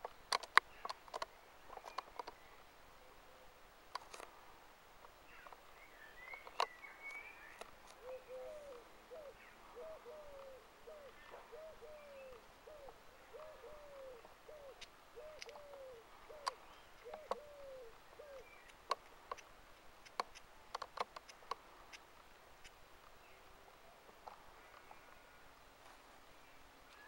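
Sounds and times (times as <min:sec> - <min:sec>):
sharp clicks and snaps: 0:00.0 - 0:02.4, 0:14.8 - 0:15.6, 0:18.6 - 0:22.0
pigeon cooing: 0:08.0 - 0:18.5.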